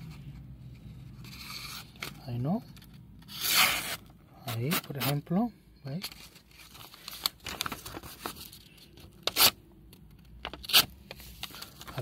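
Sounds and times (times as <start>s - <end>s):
paper rustling and crackling: 6.0s - 9.5s, 10.2s - 12.0s.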